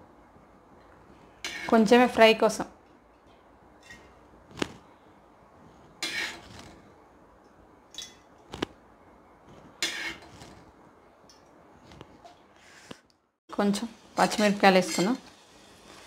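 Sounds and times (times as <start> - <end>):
spoon scraping metal pan: 1.4 - 2.0, 6.0 - 6.8, 9.8 - 10.5, 14.2 - 16.0.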